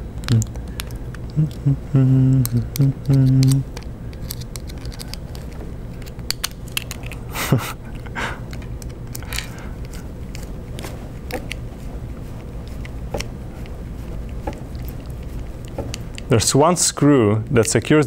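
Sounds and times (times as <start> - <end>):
low steady hum: 0.0 - 18.0
screw scraping crunches: 2.4 - 7.3.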